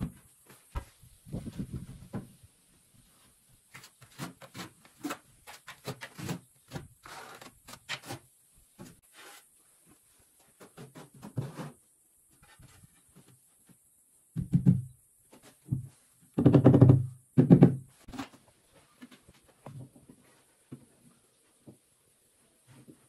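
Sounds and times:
knocks and thuds: 14.4 - 15.0, 15.7 - 17.9.

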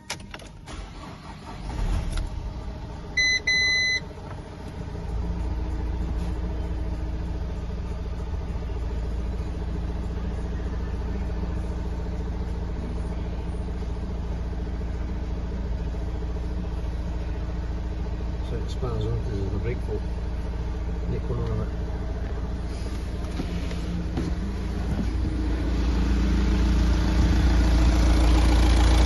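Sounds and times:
diesel engine starting and idling: 0.0 - 29.0
dashboard warning chime: 3.2 - 4.1.

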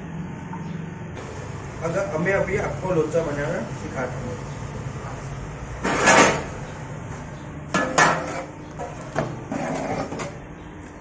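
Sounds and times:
loud metal scrape: 7.8 - 10.3.

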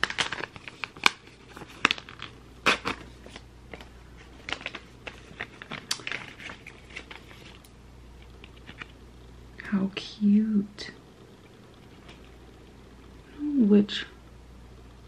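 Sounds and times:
packaging clicks taps and crinkles: 0.0 - 9.0.

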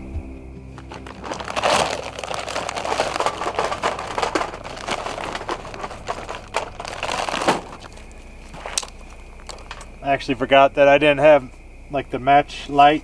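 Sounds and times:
charcoal rattling into metal pit: 0.8 - 9.9
paper bag crinkling: 0.8 - 9.9.

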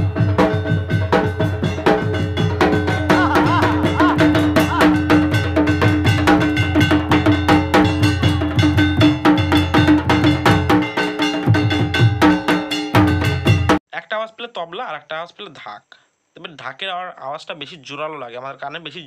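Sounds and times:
drums beaten with sticks: 0.0 - 13.8
steady held tone: 0.0 - 13.8.

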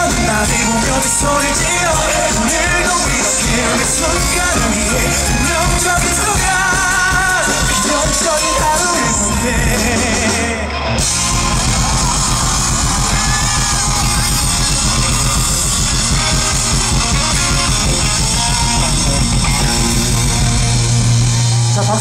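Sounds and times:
live rock band with electric guitar: 0.0 - 22.0.

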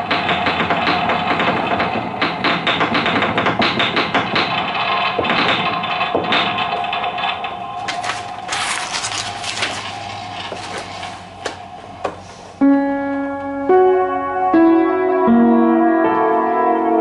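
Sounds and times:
upright piano chords: 0.0 - 8.5, 11.2 - 17.0.

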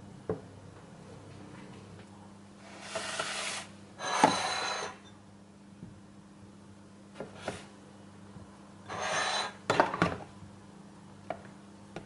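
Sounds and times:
rasping scraping noises: 8.9 - 9.6.

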